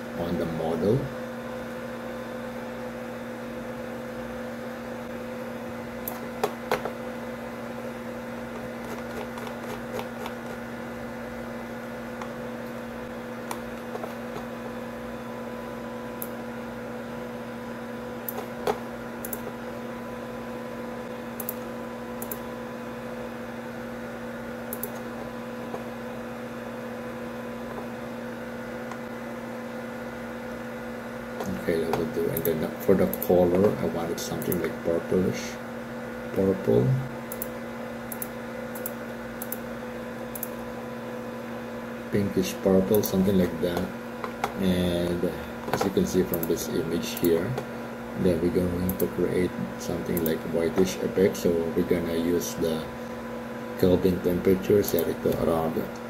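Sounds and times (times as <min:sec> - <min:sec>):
electrical hum: 0:00.0 - 0:56.0
computer mouse clicks: 0:18.2 - 0:19.5, 0:21.4 - 0:22.5, 0:24.7 - 0:25.1, 0:37.3 - 0:39.6, 0:40.3 - 0:40.6.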